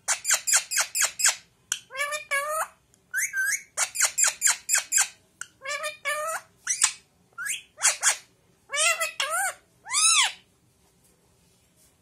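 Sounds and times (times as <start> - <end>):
parakeet whistled calls and squawks: 0.1 - 10.5.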